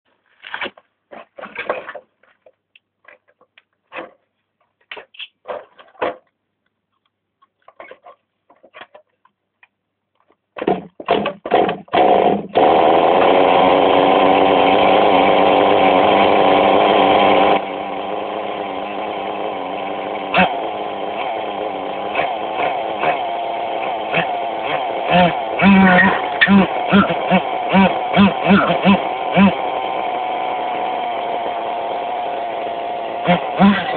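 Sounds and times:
pull-start bursts: 0:10.6 - 0:33.9
small engine high-pitched buzz: 0:11.2 - 0:33.9.

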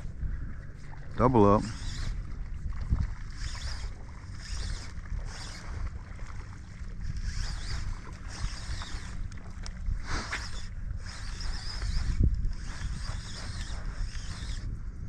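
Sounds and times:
water sloshing around legs: 0:00.0 - 0:10.7
wind on microphone: 0:00.0 - 0:15.0.

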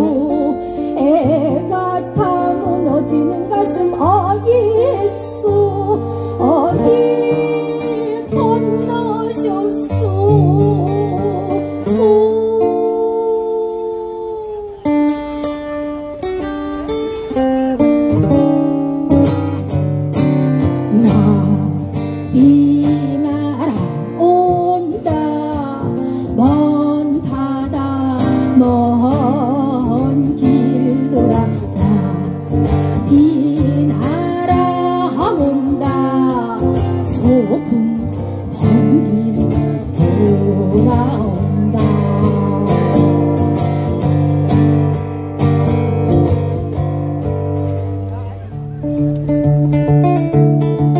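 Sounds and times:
person singing: 0:00.0 - 0:14.8, 0:20.8 - 0:43.8
strummed acoustic guitar: 0:00.0 - 0:50.9.

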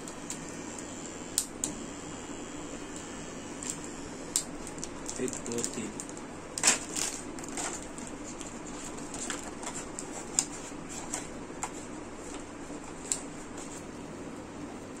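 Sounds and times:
packaging rustling: 0:04.6 - 0:13.9.

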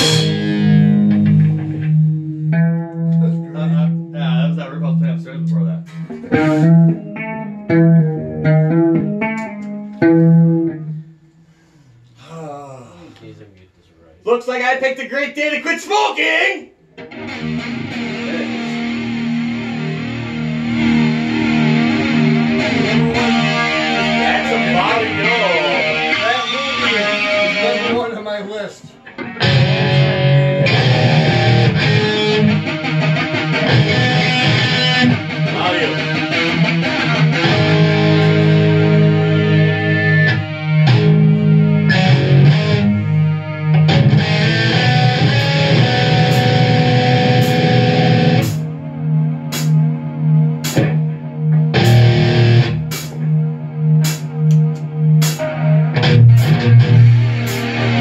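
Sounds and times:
cymbal hits: 0:00.0 - 0:00.9
drum kit: 0:00.0 - 0:03.7, 0:05.8 - 0:07.3, 0:29.2 - 0:40.3, 0:43.9 - 0:48.8, 0:49.5 - 0:49.8, 0:50.6 - 0:51.0, 0:51.7 - 0:53.3, 0:54.0 - 0:58.0
distorted electric guitar: 0:00.0 - 0:11.1, 0:16.9 - 0:28.1, 0:28.9 - 0:58.0.

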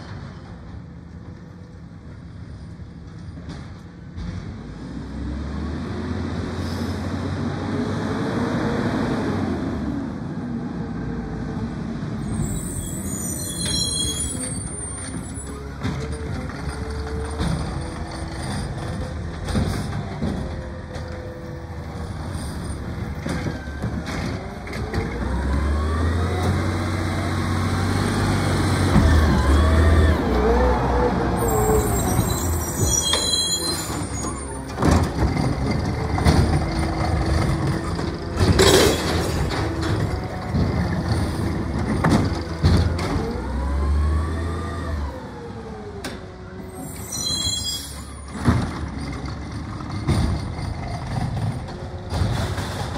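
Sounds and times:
garbage truck engine revving: 0:21.6 - 0:32.8, 0:33.9 - 0:46.0.

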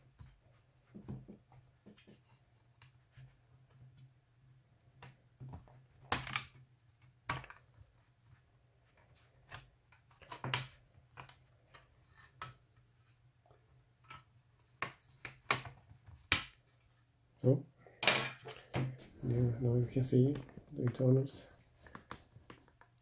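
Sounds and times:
laptop cover clicking and snapping: 0:06.0 - 0:06.6, 0:14.8 - 0:16.6.

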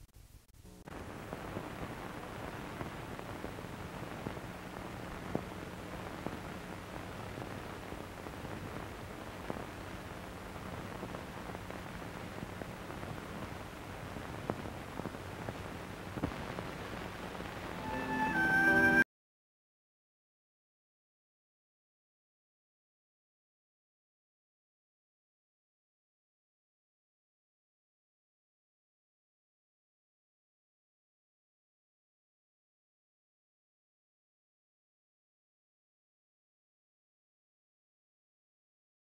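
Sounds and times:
film soundtrack hiss: 0:00.0 - 0:19.0
low steady hum: 0:00.0 - 0:19.0.

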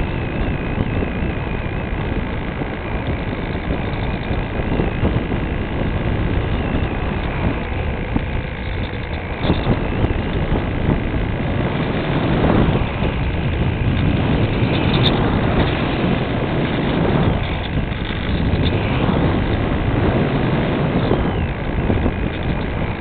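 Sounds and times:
airflow rushing over microphone: 0:00.0 - 0:23.0.

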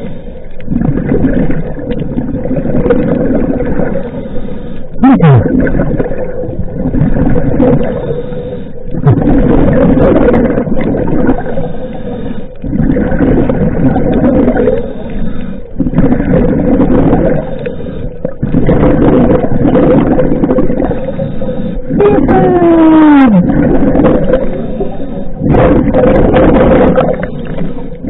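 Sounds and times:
diver breathing through regulator: 0:07.2 - 0:08.9, 0:11.4 - 0:12.7, 0:14.6 - 0:15.8, 0:17.2 - 0:19.0, 0:20.7 - 0:22.0, 0:24.1 - 0:28.0.

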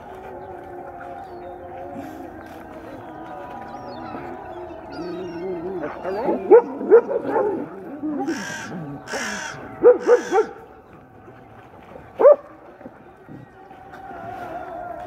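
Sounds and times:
crows cawing: 0:08.2 - 0:10.6
harsh rasping calls: 0:08.2 - 0:10.6.

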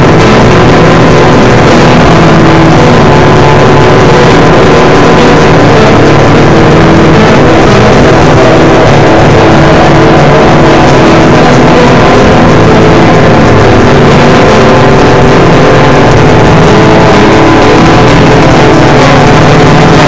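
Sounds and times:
harsh buzzing noise music: 0:00.0 - 0:20.0
low drones: 0:00.0 - 0:20.0.

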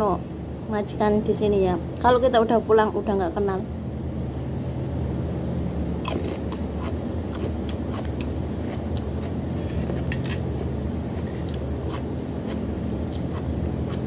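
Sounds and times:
low machine hum: 0:00.0 - 0:14.0
person chewing raw vegetables: 0:05.7 - 0:14.0.

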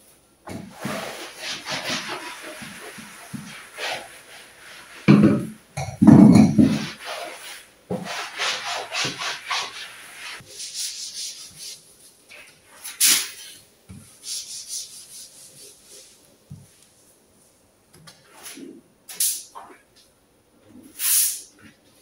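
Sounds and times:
cloth wiping surfaces: 0:00.5 - 0:05.7, 0:06.4 - 0:16.8.

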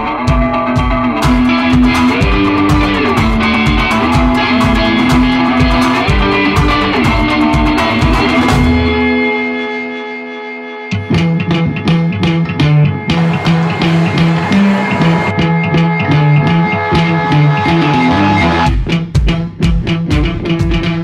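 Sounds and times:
rock music with guitar: 0:00.0 - 0:21.0.

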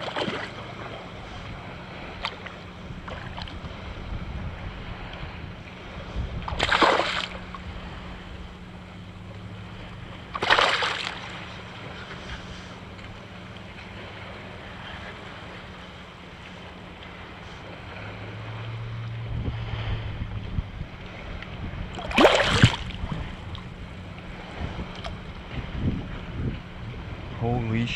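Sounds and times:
small waves lapping: 0:00.0 - 0:27.9
wind: 0:00.0 - 0:27.9
fish splashing at surface: 0:06.5 - 0:07.6, 0:10.3 - 0:11.4, 0:22.0 - 0:23.0.

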